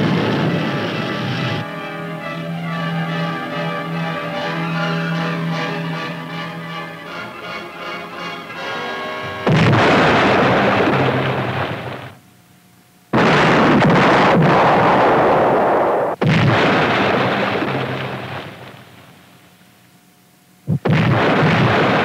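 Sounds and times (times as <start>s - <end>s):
depth charges exploding: 9.4s - 12.2s, 13.1s - 19.2s, 20.7s - 22.0s.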